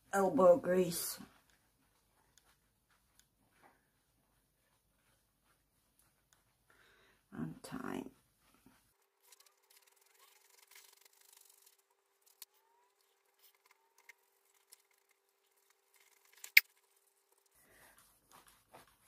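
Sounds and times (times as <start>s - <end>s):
cloth rubbing on resin: 8.1s - 19.0s
small clicks: 9.2s - 17.4s.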